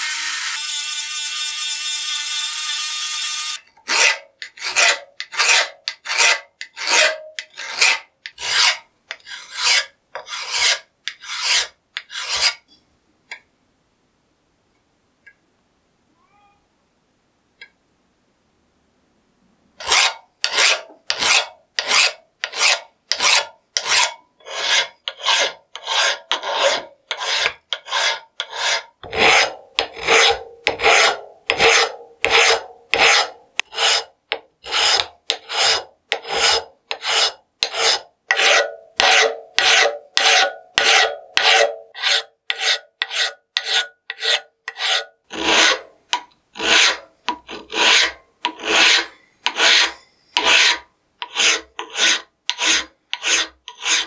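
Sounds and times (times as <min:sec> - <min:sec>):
file rasping over metal: 0:03.8 - 0:12.6, 0:19.8 - 0:54.0.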